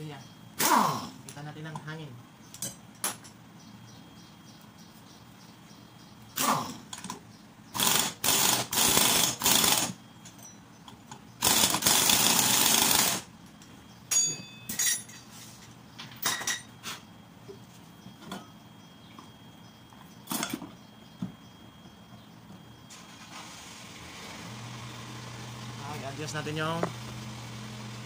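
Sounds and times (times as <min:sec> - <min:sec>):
pneumatic impact wrench hammering: 0:07.8 - 0:10.0, 0:11.4 - 0:13.3
light metallic clinks: 0:10.2 - 0:11.3, 0:13.6 - 0:15.3.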